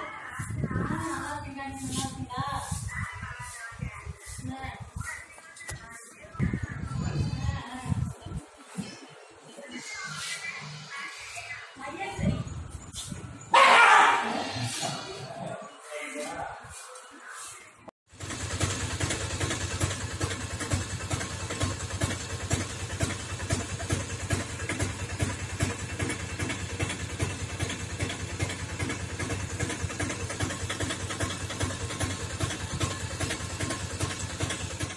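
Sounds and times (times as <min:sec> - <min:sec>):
engine idling: 0:18.1 - 0:34.9.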